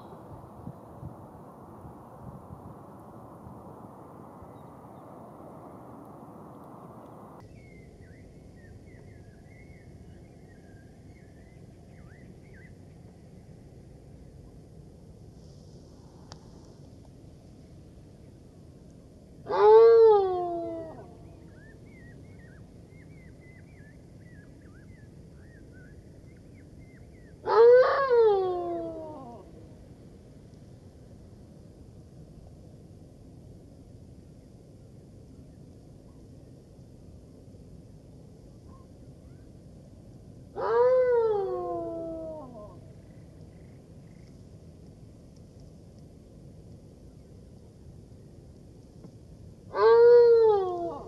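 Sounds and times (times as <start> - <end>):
low background rumble: 0.0 - 27.5
jackals howling: 19.5 - 21.0, 27.5 - 29.4, 40.6 - 42.8, 49.7 - 51.0.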